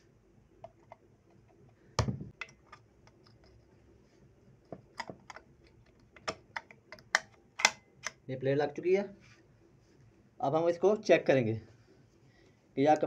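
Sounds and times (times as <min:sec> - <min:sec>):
metal clicks and taps: 0:04.7 - 0:08.2.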